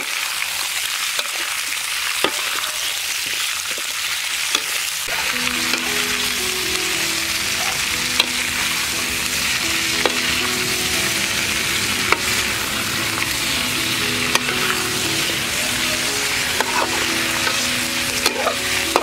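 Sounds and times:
food sizzling in a wok: 0:00.0 - 0:19.0
metal spatula clanking on wok: 0:16.5 - 0:19.0.

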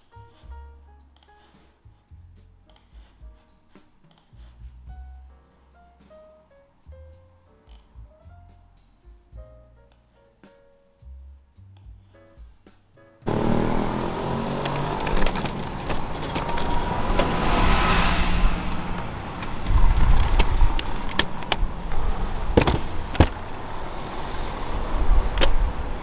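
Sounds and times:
low traffic rumble: 0:13.2 - 0:26.0.

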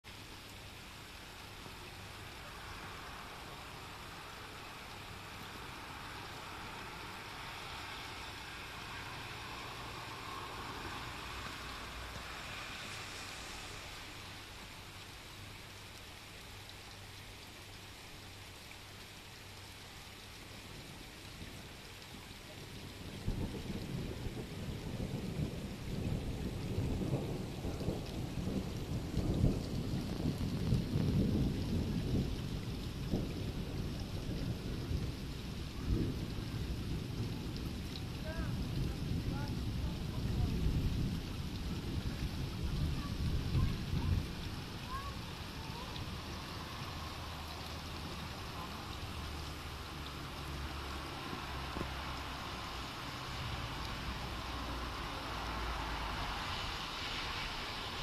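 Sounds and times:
steady rain falling: 0:00.0 - 0:58.0
rolling thunder: 0:22.8 - 0:56.2.

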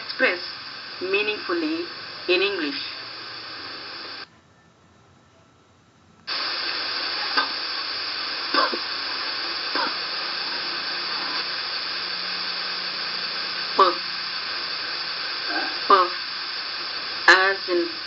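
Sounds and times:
recording noise hiss: 0:00.0 - 0:18.0.

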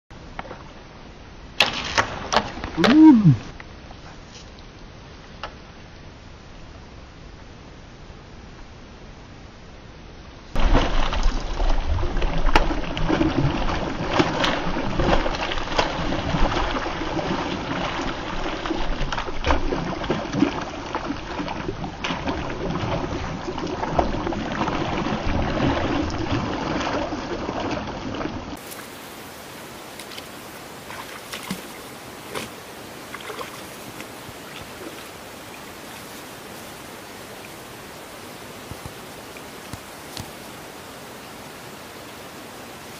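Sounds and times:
fish thrashing and splashing: 0:10.6 - 0:28.9, 0:30.9 - 0:35.2
steady hiss: 0:28.6 - 0:42.9.

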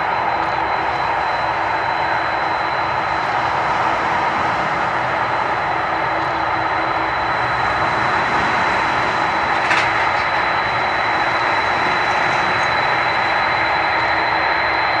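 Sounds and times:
jet engines at taxi power: 0:00.0 - 0:15.0.

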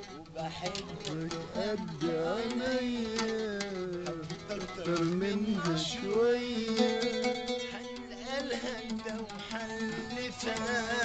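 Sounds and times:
man singing: 0:00.0 - 0:11.0
plucked oud notes: 0:00.0 - 0:11.0.

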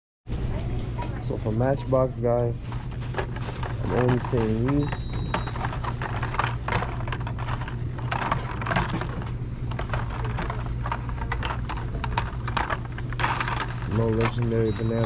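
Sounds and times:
steady low hum: 0:00.3 - 0:15.0
toy car packs clicking and rattling: 0:03.1 - 0:15.0.

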